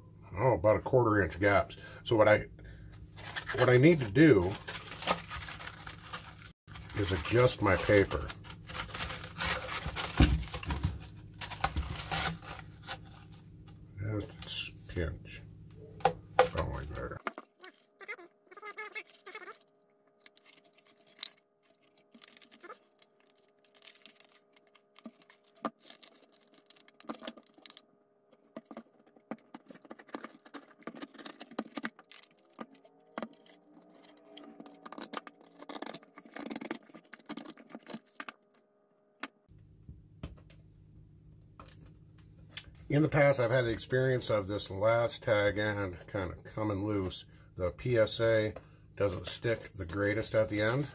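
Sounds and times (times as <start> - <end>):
sandpaper crackling and rustling: 3.2 - 10.6.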